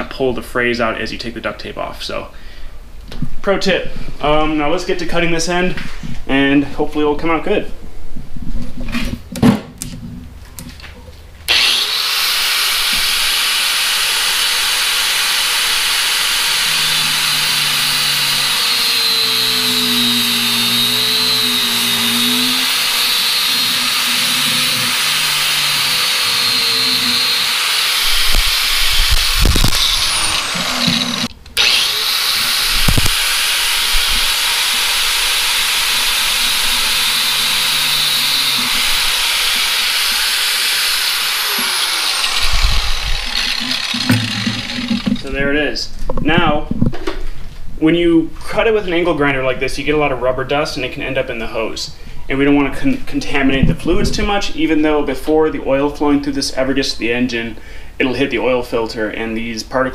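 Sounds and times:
angle grinder cutting hose: 0:11.5 - 0:45.4.

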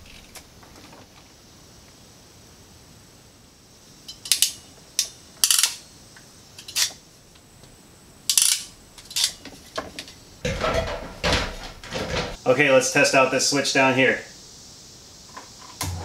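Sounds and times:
rough clatter: 0:08.3 - 0:12.4.

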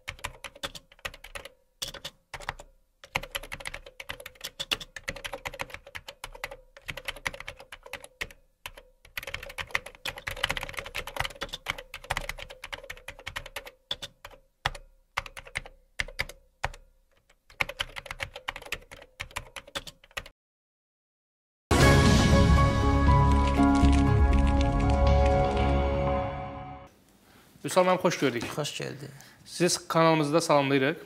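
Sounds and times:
keyboard typing clicks: 0:00.0 - 0:20.3.

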